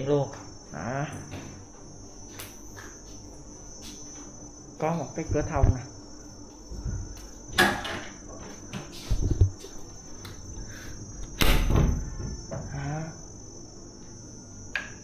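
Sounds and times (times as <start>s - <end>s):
high-pitched insect-like drone: 8.3s - 15.0s
sharp bang of door: 11.4s - 12.1s.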